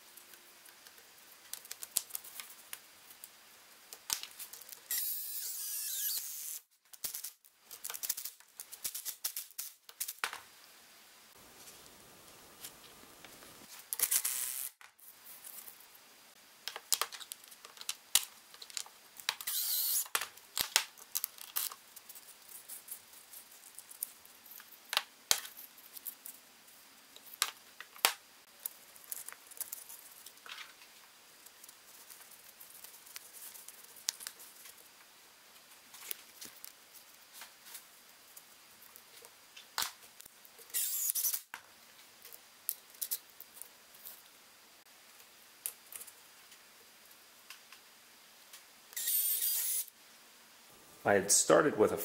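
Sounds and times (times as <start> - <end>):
power drill: 4.9 - 6.6, 19.5 - 20.0, 49.0 - 49.9
rotary tool: 4.9 - 6.6, 19.4 - 20.1, 40.7 - 41.4, 49.0 - 49.9.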